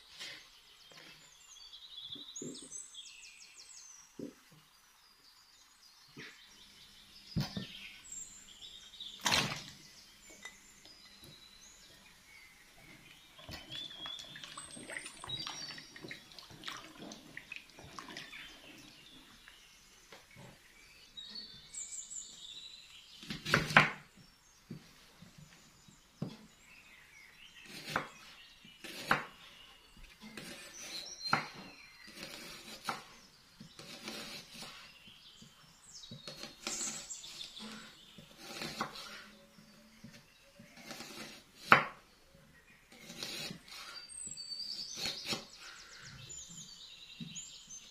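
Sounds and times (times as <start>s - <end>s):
small birds chirping: 0.0s - 47.9s
knife chopping on wooden board: 23.2s - 24.0s, 28.8s - 29.4s, 30.4s - 34.8s, 38.2s - 39.2s, 40.0s - 42.0s, 43.0s - 43.8s.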